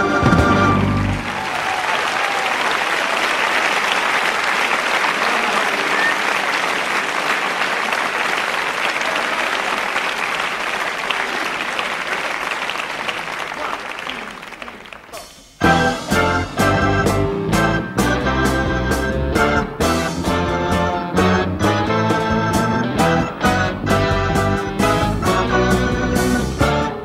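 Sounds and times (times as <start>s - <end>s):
audience applauding: 0.0s - 17.2s
rock band chord: 15.6s - 27.0s.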